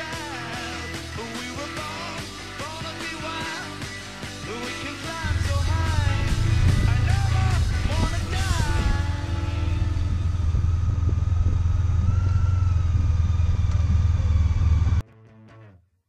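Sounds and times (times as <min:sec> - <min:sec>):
motorcycle engine rumble: 0:05.2 - 0:15.0.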